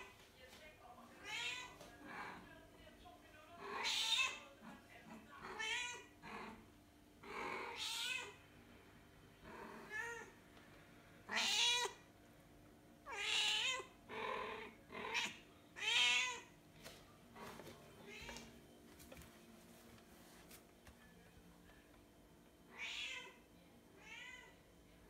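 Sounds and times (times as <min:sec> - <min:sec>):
cat meowing: 0:07.7 - 0:08.4, 0:11.3 - 0:12.0, 0:13.1 - 0:13.9, 0:15.1 - 0:16.5, 0:22.7 - 0:23.4, 0:24.0 - 0:24.6.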